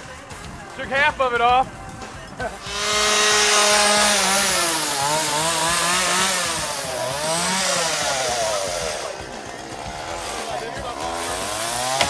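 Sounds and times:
chainsaw revving: 2.5s - 12.0s.

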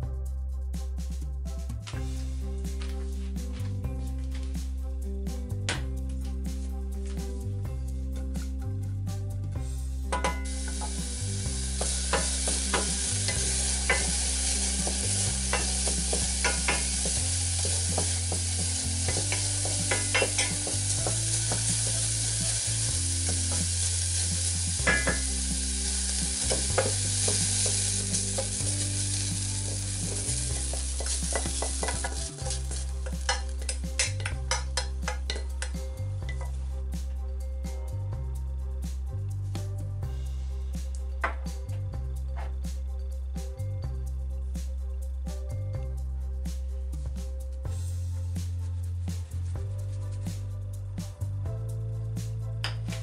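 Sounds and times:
background music: 0.0s - 53.0s
onion sizzling in oil: 10.2s - 35.7s.

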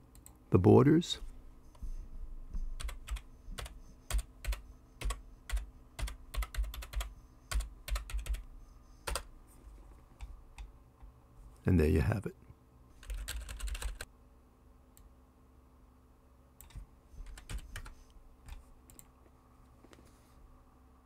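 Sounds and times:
typing on computer keyboard: 2.8s - 9.3s, 13.0s - 14.1s, 16.6s - 19.1s.

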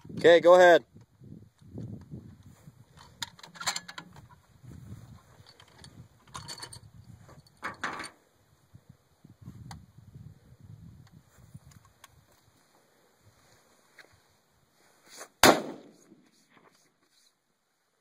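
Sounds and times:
rifle bolt clicks and rattles: 2.9s - 4.4s, 5.4s - 8.2s.

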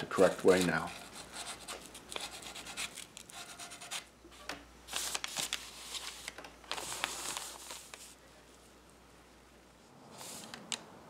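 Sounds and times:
cloth and paper rustling: 0.0s - 1.1s, 4.9s - 8.6s
sandpaper scratching wood: 0.2s - 2.9s.

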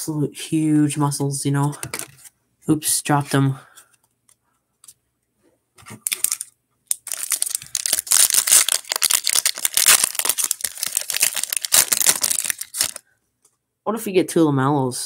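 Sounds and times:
foil wrapper crinkling and tearing: 6.0s - 13.0s.

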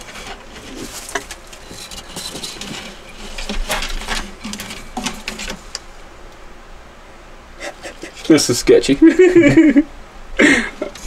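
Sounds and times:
claws scratching on wooden boards: 0.0s - 5.9s.

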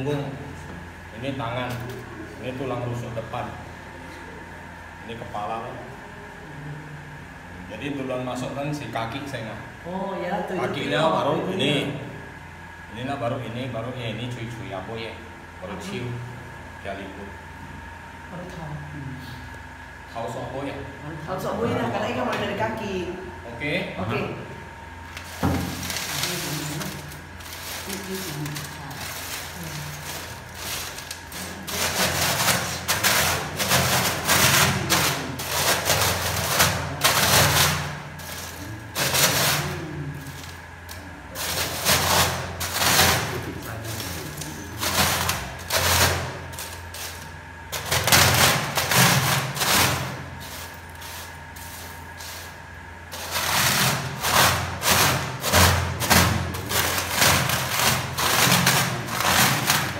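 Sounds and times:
pestle pounding: 30.0s - 39.7s, 53.1s - 59.9s.

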